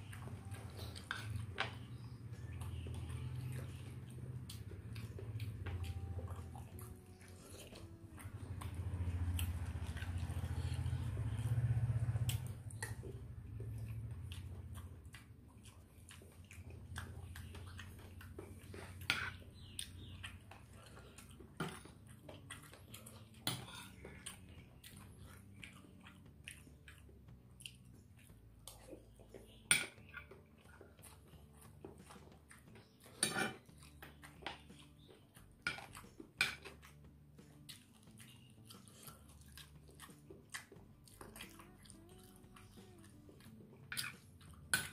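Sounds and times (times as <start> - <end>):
mouth chewing sounds: 0.0 - 44.9
metal spoon scraping on plate: 33.2 - 33.6.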